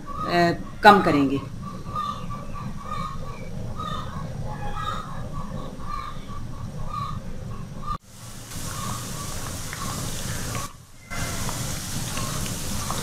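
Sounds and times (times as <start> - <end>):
birds calling: 0.0 - 13.0
low steady noise: 0.0 - 13.0
okra sizzling in hot oil: 8.0 - 13.0.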